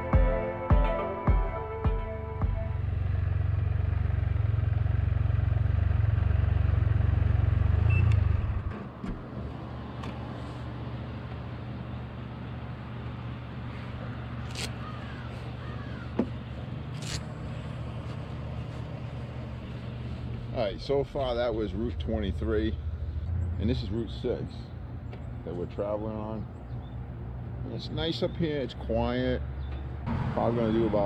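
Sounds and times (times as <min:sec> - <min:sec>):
motorcycle engine idling: 0:02.7 - 0:08.7.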